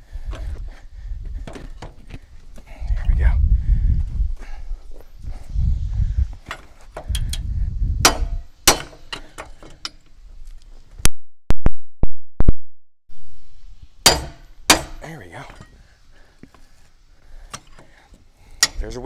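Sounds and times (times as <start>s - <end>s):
hammer striking metal part: 8.0s - 10.0s, 14.0s - 15.7s, 18.6s - 18.9s.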